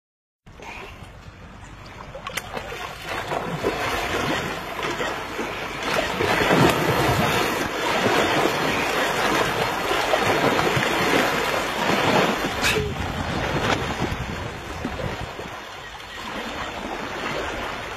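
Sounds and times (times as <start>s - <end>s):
rushing water: 1.5s - 17.9s
rushing wind: 5.4s - 17.9s.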